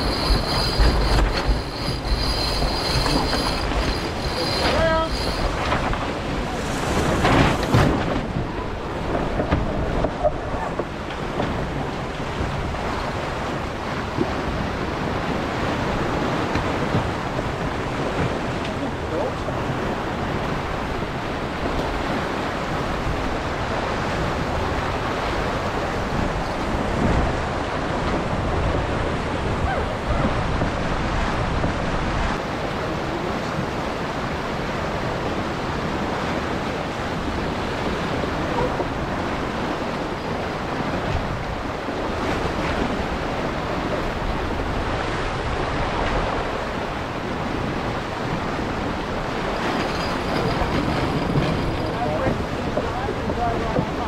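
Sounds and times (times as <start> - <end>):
water splashing along hull: 0.0 - 54.0
wind buffeting microphone: 0.0 - 54.0.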